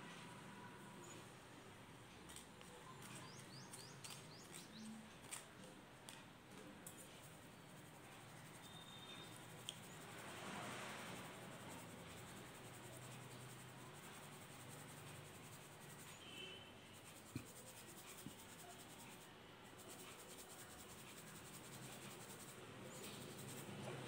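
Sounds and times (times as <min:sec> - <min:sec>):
small ticks: 0:02.3 - 0:05.5, 0:06.1 - 0:16.2
powder shaken through sieve: 0:06.9 - 0:24.0.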